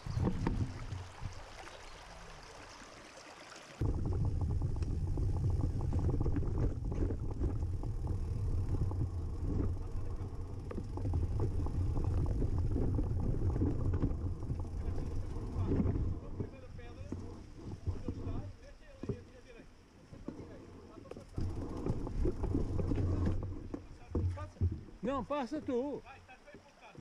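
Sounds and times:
wind rumble on microphone: 0:00.0 - 0:01.6, 0:03.8 - 0:19.2, 0:21.0 - 0:25.1
stream running over stones: 0:00.0 - 0:27.0.

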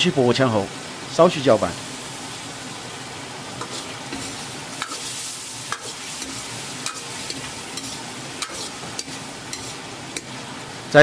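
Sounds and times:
sauce sizzling in a wok: 0:00.0 - 0:11.0
metal ladle scraping a wok: 0:03.6 - 0:10.3.

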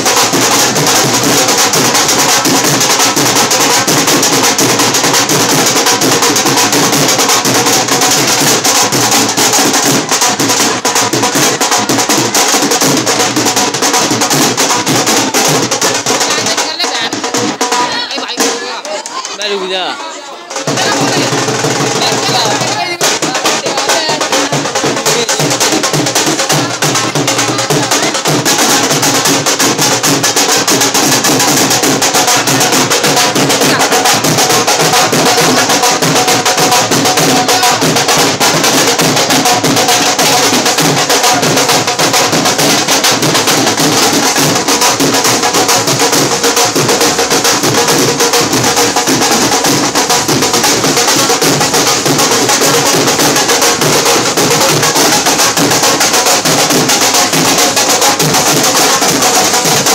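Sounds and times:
barrel drums beaten with sticks: 0:00.0 - 0:19.8, 0:20.5 - 0:59.9.

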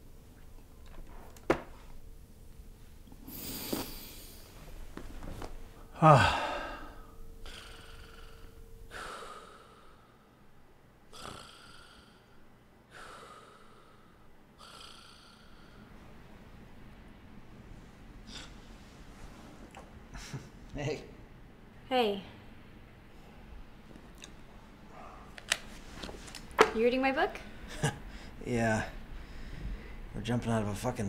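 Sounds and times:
man sighing: 0:05.9 - 0:09.6
man snoring: 0:05.9 - 0:09.8, 0:11.1 - 0:13.7, 0:14.6 - 0:15.8.

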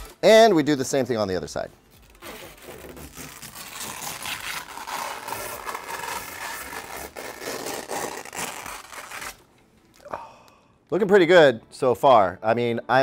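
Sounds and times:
plastic film peeling: 0:00.0 - 0:00.6, 0:01.5 - 0:10.1.

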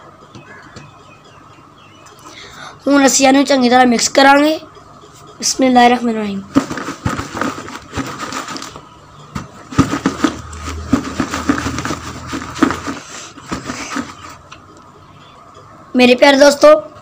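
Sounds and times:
mango pieces clattering in plastic bucket: 0:06.5 - 0:14.4.

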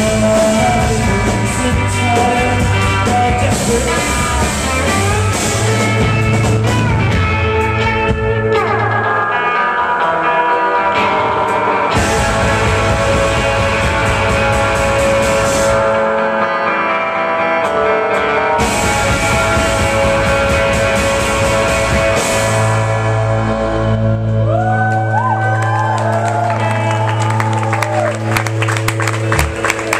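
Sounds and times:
drums and cymbals: 0:00.0 - 0:08.6, 0:11.9 - 0:16.0, 0:18.6 - 0:23.7
electric guitars: 0:00.0 - 0:29.9.

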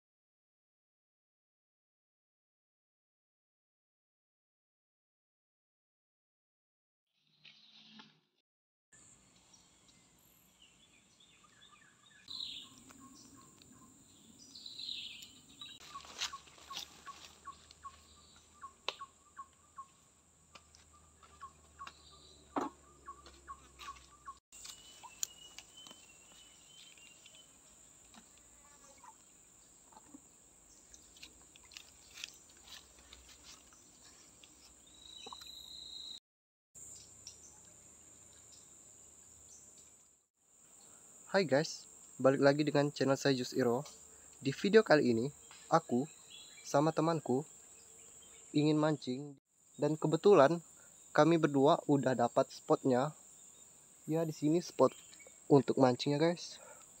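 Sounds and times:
birds chirping and calling: 0:09.3 - 0:20.0, 0:20.6 - 0:27.5, 0:28.1 - 0:36.2.

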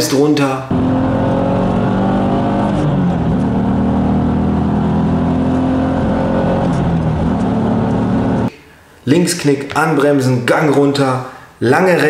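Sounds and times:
race car engine from cabin: 0:00.7 - 0:08.5.

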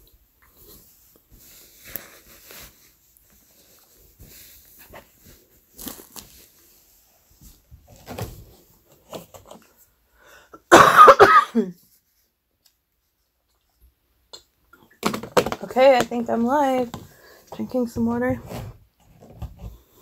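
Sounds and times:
faint small noises: 0:00.0 - 0:10.8, 0:11.4 - 0:20.0
person coughing: 0:10.6 - 0:11.8.

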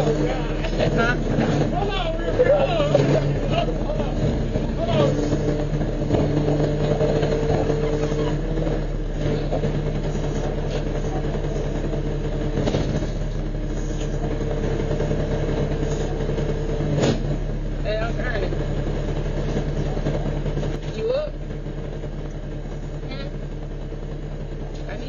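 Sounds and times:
truck engine idling: 0:00.0 - 0:25.0.

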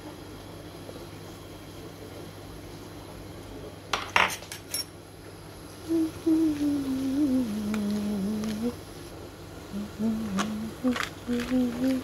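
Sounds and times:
person humming a tune: 0:05.8 - 0:08.8, 0:09.7 - 0:12.0.

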